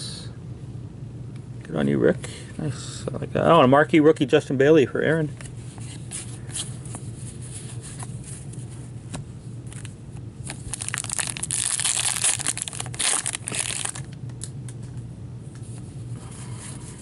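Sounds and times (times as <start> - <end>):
card pack wrapper ripping: 10.4 - 14.5.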